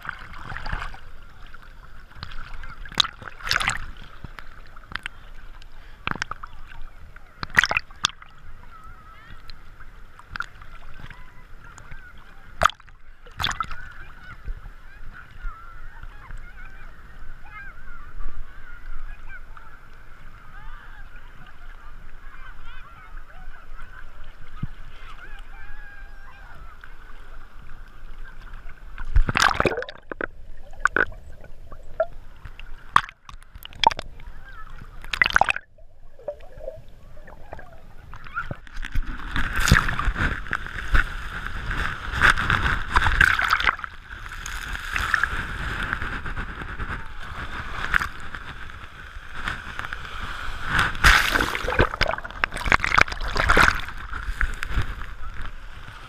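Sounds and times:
sharp splashes: 0.0s - 5.3s, 6.0s - 8.5s, 12.5s - 13.9s, 29.0s - 55.2s
muffled water sloshing: 0.0s - 17.7s, 23.5s - 56.0s
small waves breaking: 0.0s - 56.0s.

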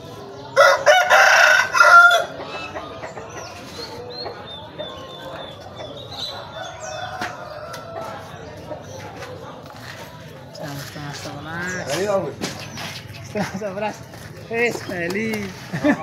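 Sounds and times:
background murmur: 0.0s - 16.0s
rooster crowing: 0.6s - 2.4s.

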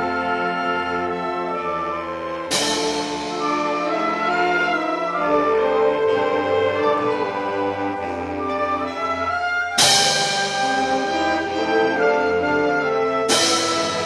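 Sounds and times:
concert band playing chords: 2.5s - 5.4s.

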